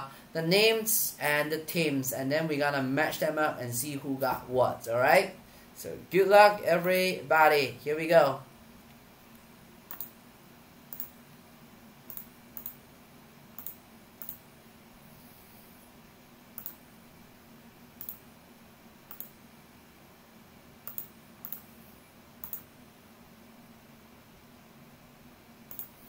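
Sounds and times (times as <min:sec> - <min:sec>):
faint steady hum: 0:00.0 - 0:26.0
mouse and keyboard clicking: 0:09.9 - 0:10.2, 0:10.9 - 0:11.1, 0:12.1 - 0:12.8, 0:13.6 - 0:14.4, 0:16.6 - 0:16.8, 0:18.0 - 0:18.2, 0:19.1 - 0:19.3, 0:20.9 - 0:21.7, 0:22.4 - 0:22.7, 0:25.7 - 0:26.0.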